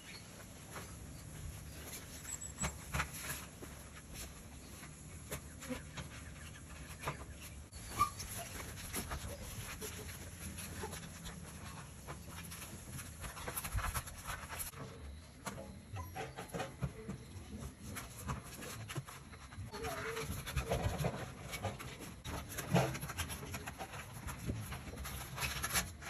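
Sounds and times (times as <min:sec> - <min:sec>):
dogs snuffling and panting: 0:00.0 - 0:26.0.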